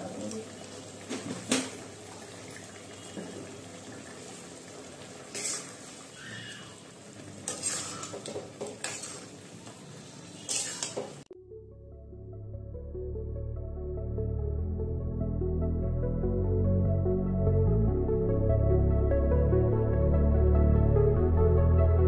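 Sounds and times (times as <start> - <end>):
gravy sizzling: 0.0 - 11.3
spatula scraping metal pan: 5.3 - 5.9, 7.4 - 9.4, 10.3 - 11.2
background music: 11.3 - 22.0.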